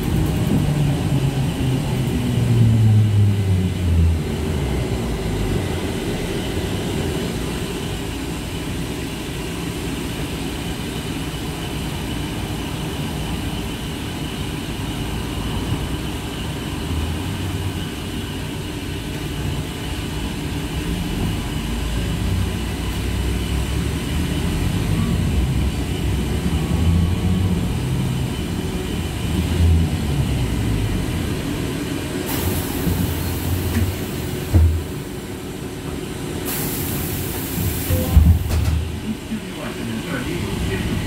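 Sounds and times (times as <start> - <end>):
trolleybus ride rumble: 0.0 - 41.0
knock: 38.1 - 38.8.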